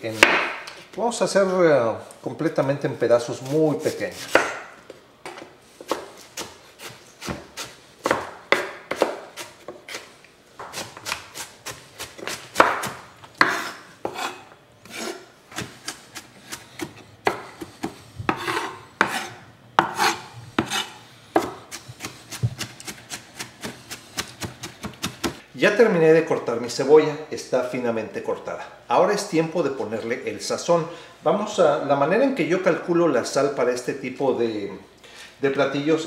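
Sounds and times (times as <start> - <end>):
knife chopping on wooden board: 0.2 - 0.7, 4.2 - 4.7, 5.3 - 25.4
knife scraping through onion: 3.4 - 4.5, 5.7 - 7.8, 8.9 - 10.1, 10.7 - 25.4.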